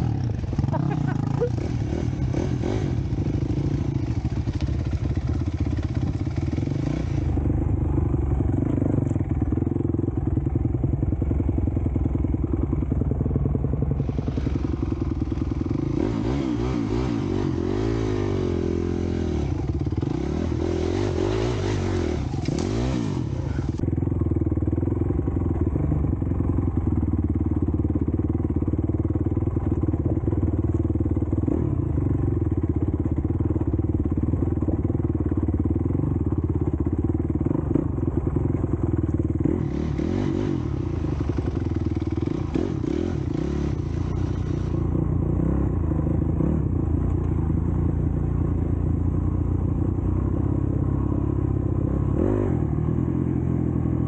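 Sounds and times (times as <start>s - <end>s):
dirt bike engine revving: 0.0s - 7.8s, 13.8s - 23.8s, 39.4s - 46.7s.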